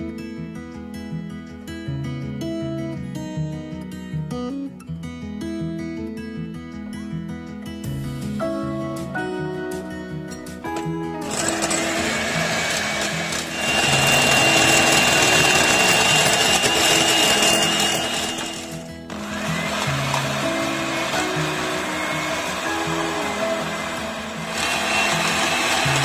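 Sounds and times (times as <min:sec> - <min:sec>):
soft guitar music: 0:00.0 - 0:26.0
electric hand mixer whirring: 0:11.2 - 0:26.0.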